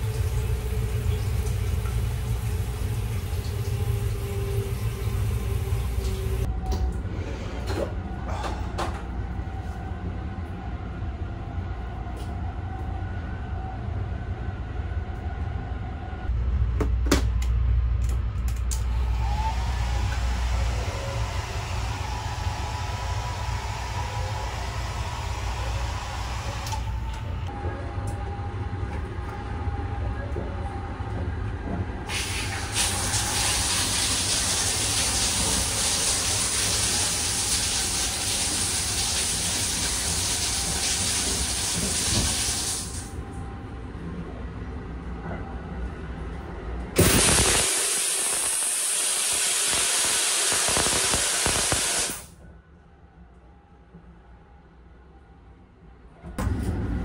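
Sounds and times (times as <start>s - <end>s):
shower water spraying: 32.1s - 43.1s, 47.0s - 52.3s.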